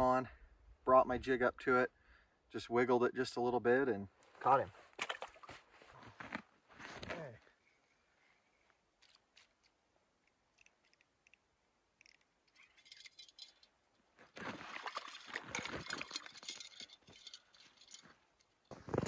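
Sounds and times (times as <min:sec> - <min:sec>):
crunching and ticking: 0:09.0 - 0:19.0.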